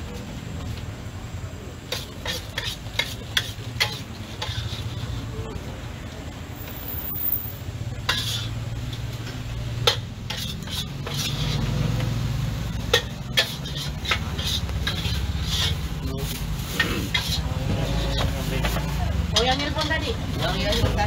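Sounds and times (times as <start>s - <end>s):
light sizzle: 0.1s - 17.4s
metal spatula scraping a wok: 1.8s - 5.4s, 7.4s - 21.0s
spatula clanging against pan: 12.9s - 15.8s, 18.1s - 20.0s.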